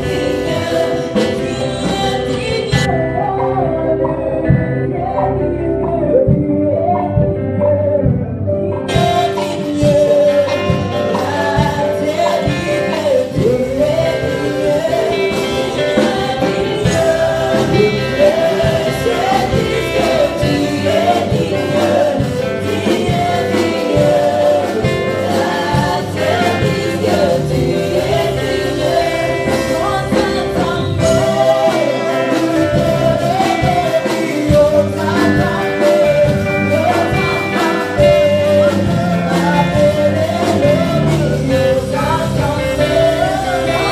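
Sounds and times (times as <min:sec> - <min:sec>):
drums: 0:00.0 - 0:43.9
group singing gospel song: 0:00.0 - 0:43.9
guitar: 0:00.0 - 0:43.9
keyboard: 0:00.0 - 0:43.9.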